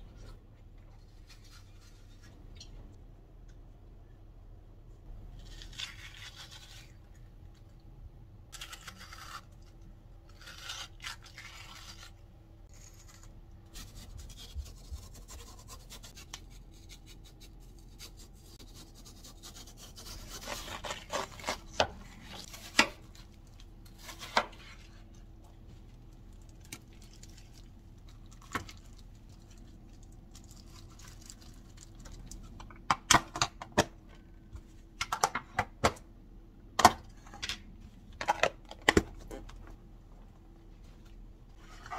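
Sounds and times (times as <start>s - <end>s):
knife slicing watermelon: 12.7s - 23.0s.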